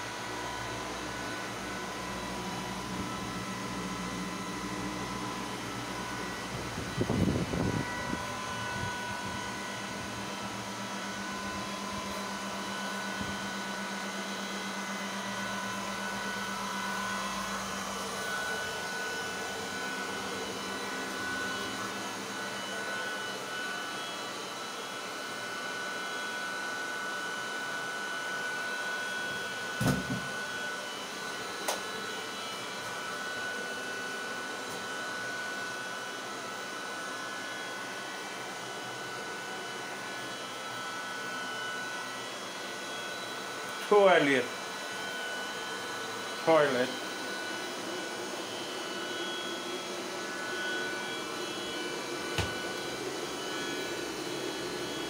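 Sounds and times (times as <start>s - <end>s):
cooling fans whooshing and whining: 0.0s - 55.0s
thump: 29.8s - 30.3s, 52.4s - 52.6s.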